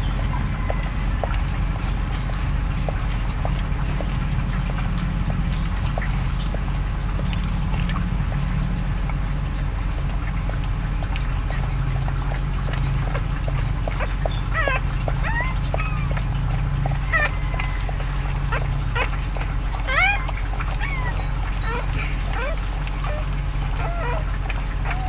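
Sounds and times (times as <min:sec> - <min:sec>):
steady low hum: 0:00.0 - 0:25.0
puppies squeaking and whimpering: 0:11.0 - 0:25.0.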